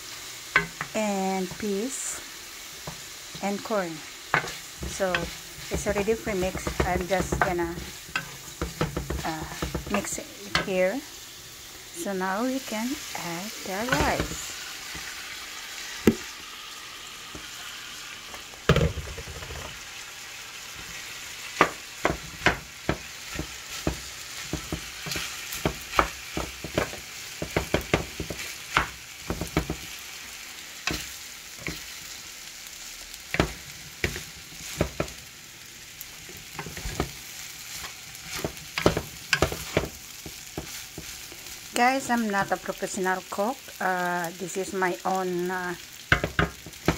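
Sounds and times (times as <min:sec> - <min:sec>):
food sizzling in frying pan: 0:00.0 - 0:46.9
wooden spoon knocking and scraping pan: 0:00.5 - 0:01.7, 0:02.8 - 0:10.8, 0:13.7 - 0:15.1, 0:18.6 - 0:19.8, 0:20.8 - 0:30.0, 0:30.8 - 0:32.0, 0:33.3 - 0:35.2, 0:36.2 - 0:41.4, 0:46.1 - 0:46.9.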